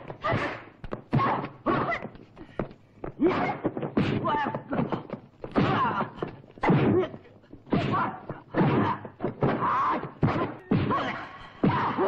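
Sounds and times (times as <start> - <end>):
punch and kick impacts: 3.2 - 4.9, 7.7 - 12.0
fighters shouting and grunting: 3.2 - 12.0.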